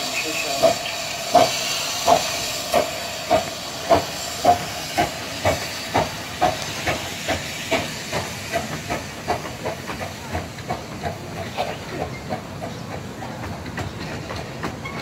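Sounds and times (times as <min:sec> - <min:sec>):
steam hissing: 0:00.0 - 0:15.0
steam locomotive exhaust chuffs: 0:00.0 - 0:15.0.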